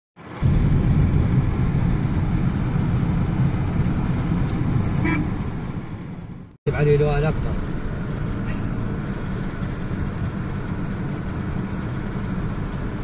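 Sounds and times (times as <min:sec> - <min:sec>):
car engine and tyre rumble: 0:00.2 - 0:13.0.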